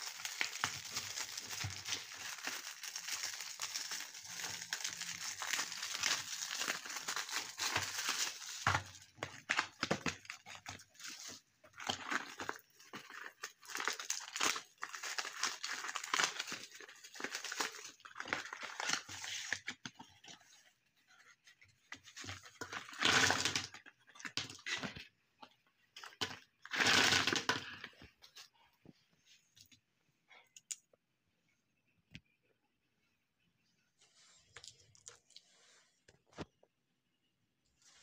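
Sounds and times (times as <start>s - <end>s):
wrappers crinkling and rustling: 0.0s - 20.6s.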